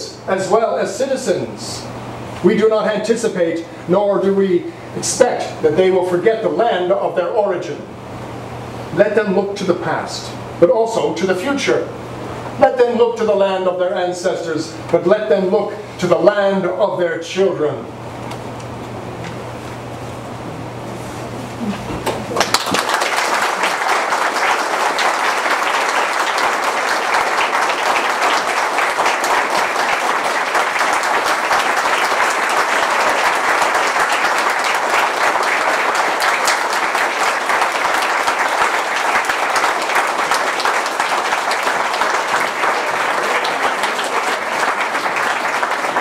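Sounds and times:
audience applauding: 22.0 - 46.0.

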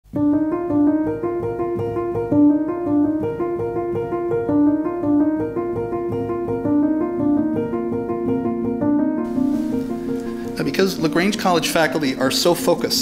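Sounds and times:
piano repeating short notes: 8.6 - 13.0.

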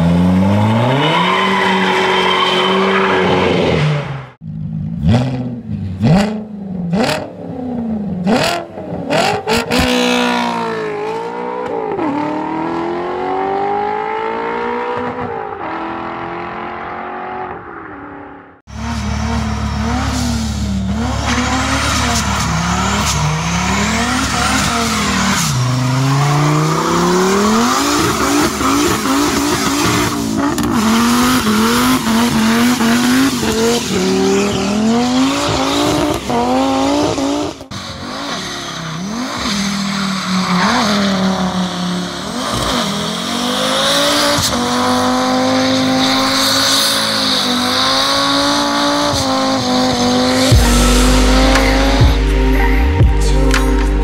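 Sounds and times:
car engine revving hard: 18.7 - 38.4, 40.6 - 52.7
music: 50.5 - 54.0.

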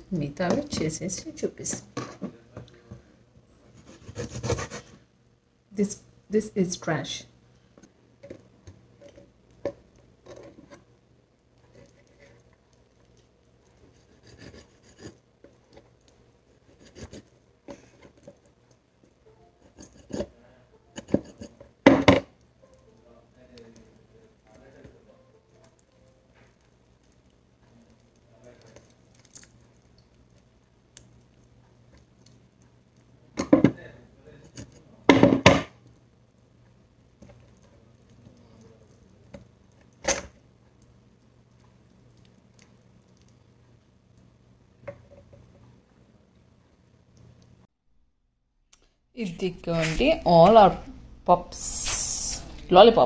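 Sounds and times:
knife scraping raw chicken: 3.8 - 5.0, 13.8 - 15.2, 16.6 - 18.2, 19.6 - 20.4.

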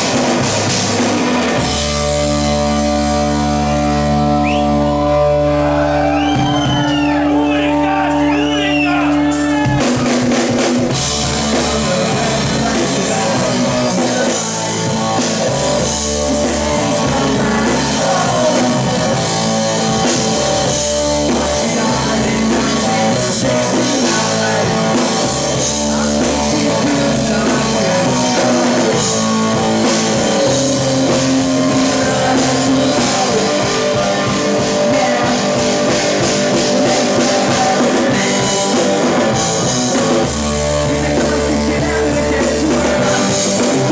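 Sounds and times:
rock band playing: 0.0 - 43.9
man singing into a microphone: 11.0 - 43.9.

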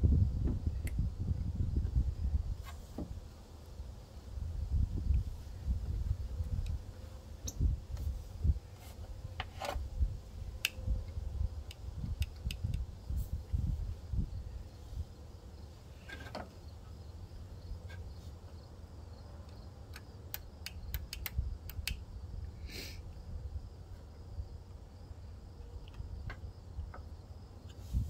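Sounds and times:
steady low rumble: 0.0 - 6.9
faint insect chirring: 9.4 - 28.0.

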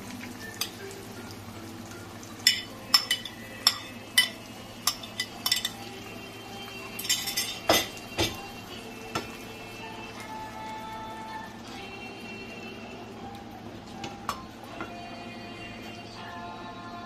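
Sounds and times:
metal spoon clinking on glass dish: 2.4 - 5.8, 7.0 - 8.4.

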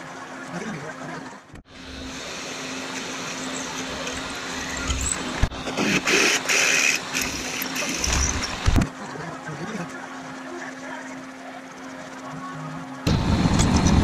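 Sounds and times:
drill press motor humming: 1.7 - 8.8
drill bit cutting steel: 1.8 - 8.8.

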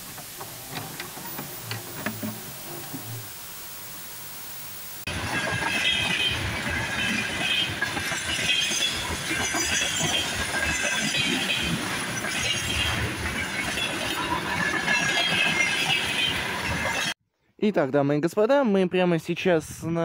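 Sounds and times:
high wheel squeal: 5.1 - 17.2
train wheels rumbling on rail: 5.1 - 17.2
wheels clickety-clack: 5.1 - 17.2.

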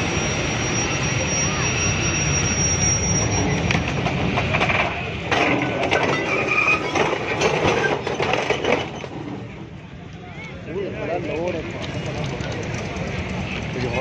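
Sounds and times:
wheel squeals: 0.0 - 9.6
train engine rumble: 0.0 - 14.0.

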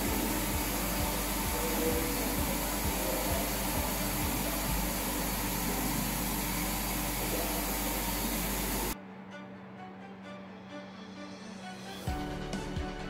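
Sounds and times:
shower water spraying: 0.0 - 9.0.

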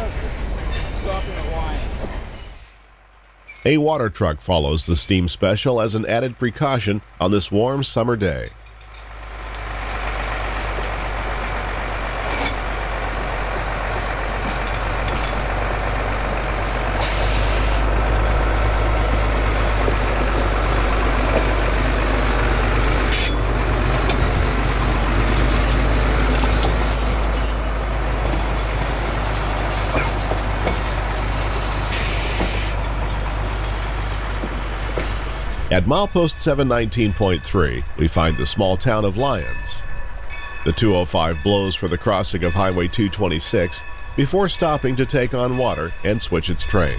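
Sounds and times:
steam locomotive rumble: 0.0 - 46.9
short sharp steam hisses: 17.0 - 17.9, 32.0 - 32.8.

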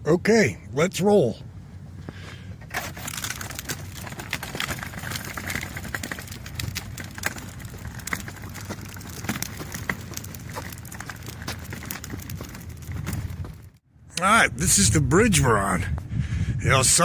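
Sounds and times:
wagon wheels rolling on pavement: 2.6 - 14.4
wagon frame clicking and rattling: 2.7 - 13.8.

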